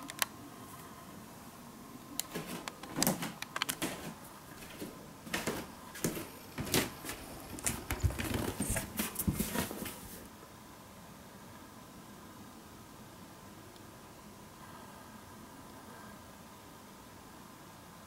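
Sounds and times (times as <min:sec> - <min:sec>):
device handling clicks and rustles: 0:00.0 - 0:00.3, 0:02.2 - 0:04.2
footsteps on wooden floor: 0:02.3 - 0:10.2.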